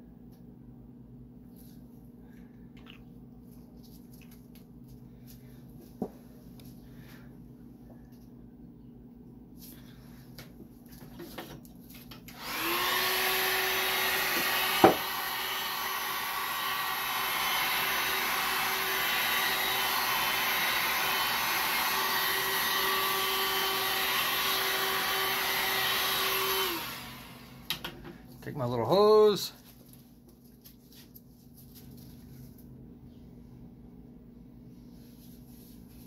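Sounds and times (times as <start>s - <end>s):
electric blower humming: 12.3s - 28.2s.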